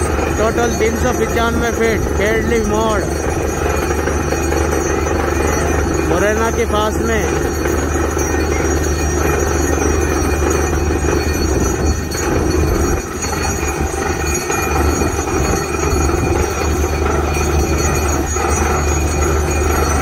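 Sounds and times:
drilling rig engine drone: 0.0 - 20.0.

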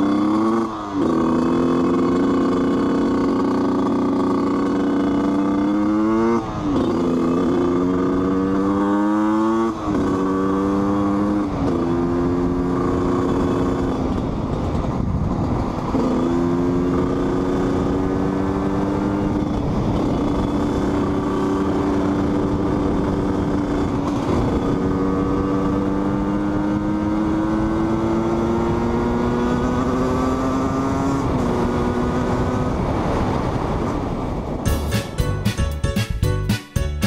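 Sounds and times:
two-stroke motorcycle engine: 0.0 - 35.2
wind rush on microphone: 11.0 - 34.7.

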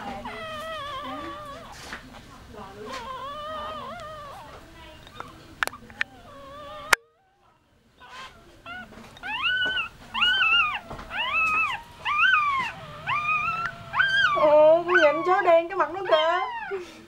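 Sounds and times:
newborn puppies whining: 0.0 - 17.0.

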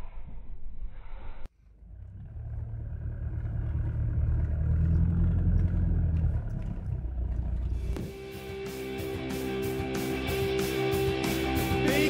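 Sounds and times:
van engine rumble: 1.5 - 8.3.

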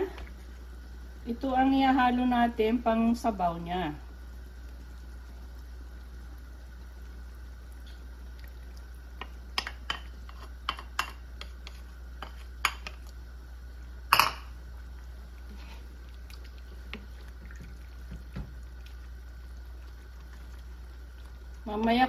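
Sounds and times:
steady low hum: 0.0 - 22.0
liquid pouring: 4.6 - 10.3, 14.6 - 21.7.

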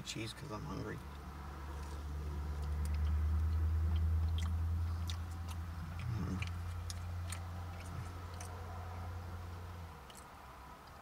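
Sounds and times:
chewing with wet mouth clicks: 1.7 - 9.0, 10.0 - 11.0.

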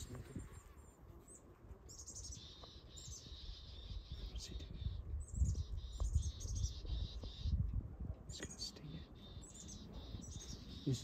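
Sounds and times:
small birds chirping: 0.0 - 11.0
wind buffeting microphone: 3.0 - 11.0.

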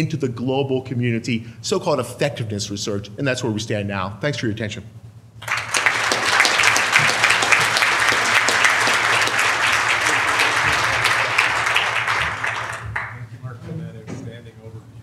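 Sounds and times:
audience applauding: 5.4 - 13.2.

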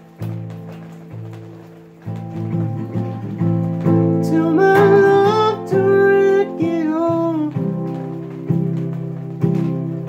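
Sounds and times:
acoustic guitar strumming: 0.0 - 10.0
man singing high wordless notes: 4.1 - 7.8.

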